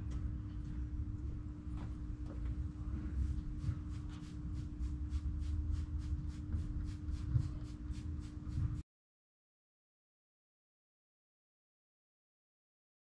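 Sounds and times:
low uneven rumble: 0:00.0 - 0:08.8
steady low hum: 0:00.0 - 0:08.8.

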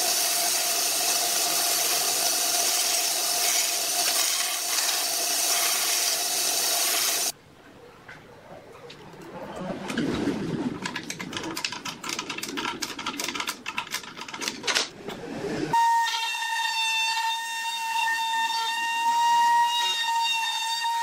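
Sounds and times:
metallic clicks and rattles: 0:10.8 - 0:14.9.

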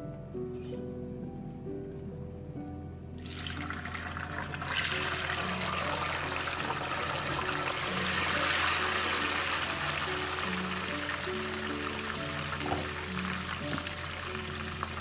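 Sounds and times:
tofu sizzling in hot oil: 0:03.8 - 0:15.0.

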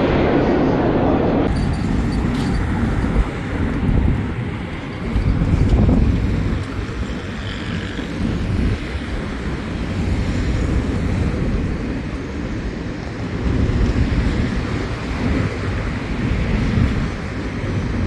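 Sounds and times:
wind on microphone: 0:00.0 - 0:18.0
electric train running: 0:01.5 - 0:18.0.

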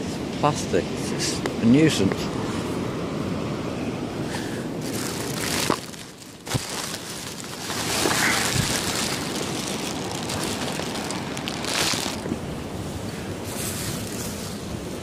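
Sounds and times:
surf washing on beach: 0:00.0 - 0:15.0
wind on microphone: 0:07.6 - 0:15.0.

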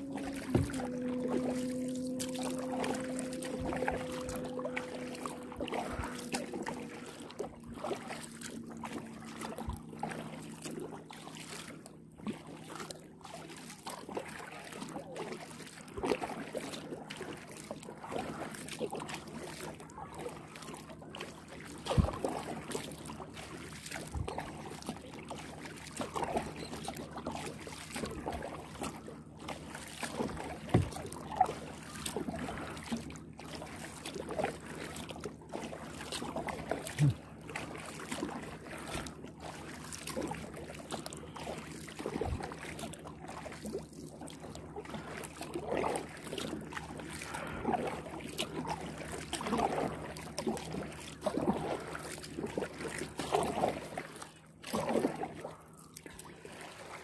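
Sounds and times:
water dripping and splashing: 0:00.0 - 0:55.3
paddle strokes in water: 0:00.0 - 0:57.0
short low knocks: 0:00.1 - 0:06.8.

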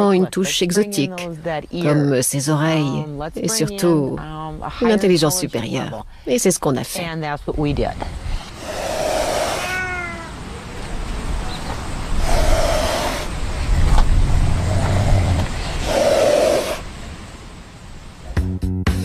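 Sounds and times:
serval hissing and spitting: 0:08.3 - 0:09.8, 0:12.1 - 0:13.5, 0:14.4 - 0:16.9.

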